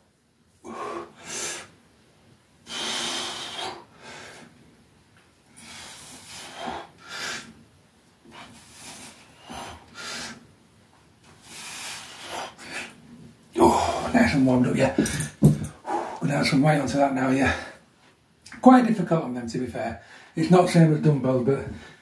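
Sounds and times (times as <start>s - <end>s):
man breathing heavily: 0.6s - 1.8s, 2.6s - 4.6s, 5.5s - 7.6s, 8.2s - 10.5s, 11.4s - 13.0s, 13.6s - 14.4s, 15.0s - 16.3s.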